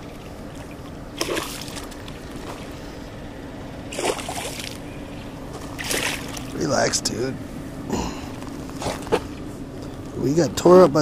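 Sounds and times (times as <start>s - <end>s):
fish splashing in shallow water: 0.0s - 3.1s, 3.9s - 4.9s, 5.5s - 6.6s
water noise: 0.0s - 7.8s.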